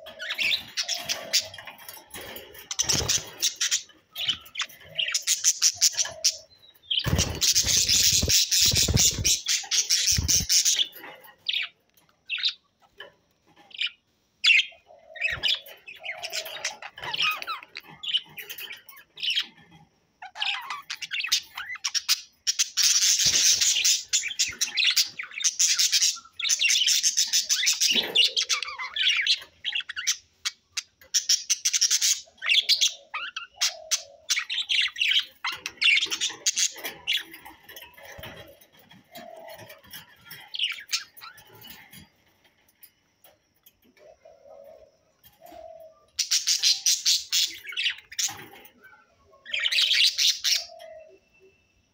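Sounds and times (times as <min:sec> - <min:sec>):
budgerigars chattering: 0:02.6 - 0:11.7.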